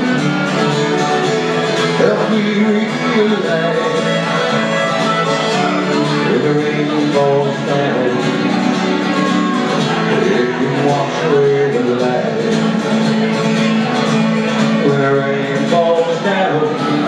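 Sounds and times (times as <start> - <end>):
bowed fiddle: 0.0 - 7.0
harmonica: 0.0 - 11.2
strummed acoustic guitar: 0.0 - 17.0.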